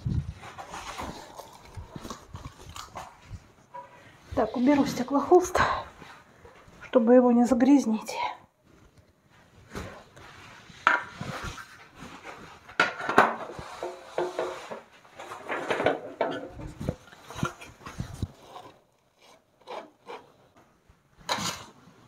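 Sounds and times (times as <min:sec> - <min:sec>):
plastering tools knocking and scraping: 0:12.3 - 0:21.7.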